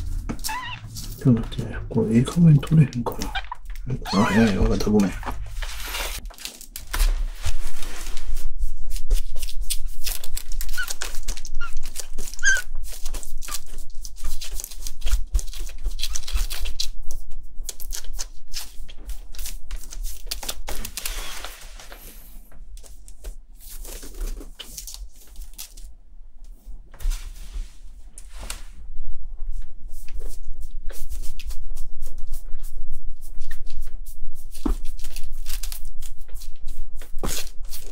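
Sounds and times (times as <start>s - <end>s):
plastic pad crinkling: 0.0s - 26.0s, 34.5s - 37.9s
kitten squeaking: 0.4s - 1.0s, 3.2s - 4.7s, 10.6s - 13.6s.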